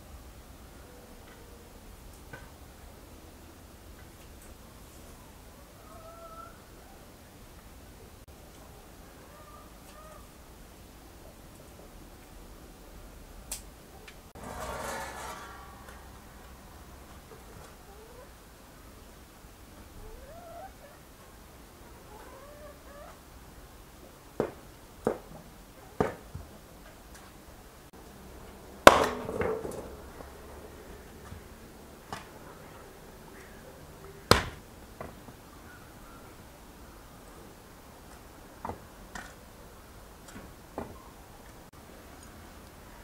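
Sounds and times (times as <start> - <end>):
firewood logs knocking together: 28.8 - 30.3, 34.3 - 35.2.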